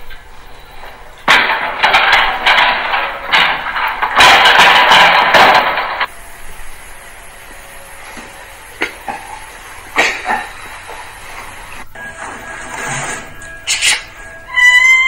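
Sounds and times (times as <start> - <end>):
loud clattering rattle: 0.0 - 6.2.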